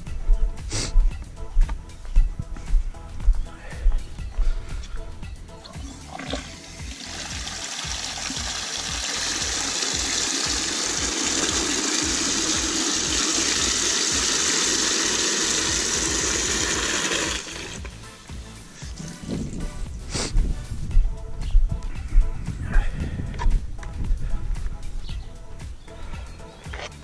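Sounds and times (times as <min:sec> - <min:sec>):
water running into plastic bucket: 0:05.7 - 0:18.0.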